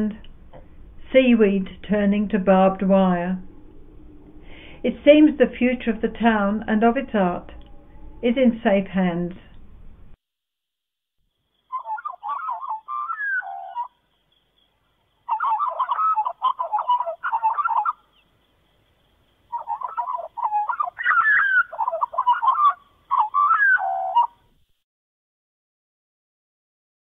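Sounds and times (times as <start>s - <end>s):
birds chattering calls: 11.7s - 14.0s, 15.1s - 24.4s.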